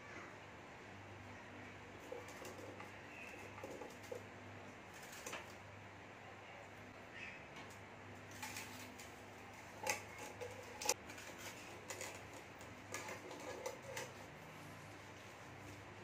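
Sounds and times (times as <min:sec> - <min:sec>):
hands handling food in metal pot: 0:08.3 - 0:14.5.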